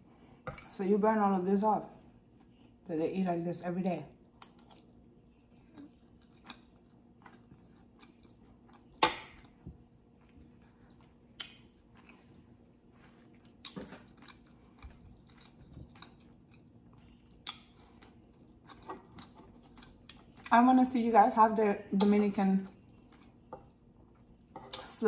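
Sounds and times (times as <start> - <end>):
close-miked chewing: 4.1 - 20.7.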